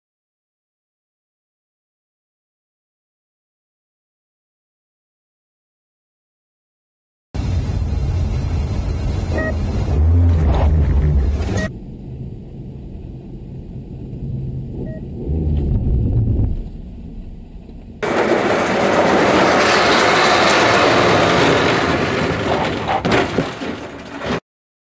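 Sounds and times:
road rumble inside car: 0:07.4 - 0:20.9
wind and tyre noise: 0:07.4 - 0:24.4.

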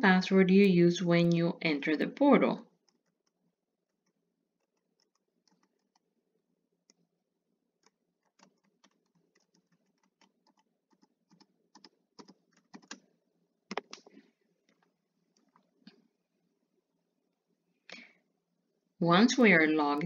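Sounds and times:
keyboard typing clicks: 0:07.8 - 0:13.0, 0:13.7 - 0:14.1.

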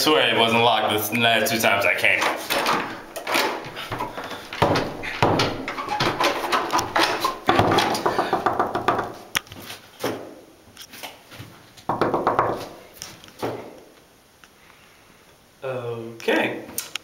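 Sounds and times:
door handle clicking and rattling: 0:02.1 - 0:09.0
wooden door thudding in frame: 0:02.2 - 0:09.2, 0:11.9 - 0:12.7.

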